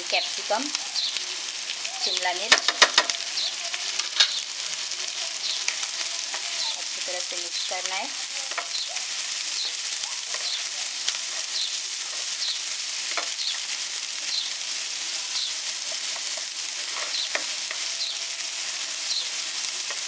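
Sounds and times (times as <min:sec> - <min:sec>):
vegetables sizzling in hot oil: 0:00.0 - 0:20.0
spatula tapping pan: 0:02.4 - 0:03.3, 0:07.8 - 0:13.7, 0:15.4 - 0:18.2
spatula scraping pan: 0:02.5 - 0:20.0.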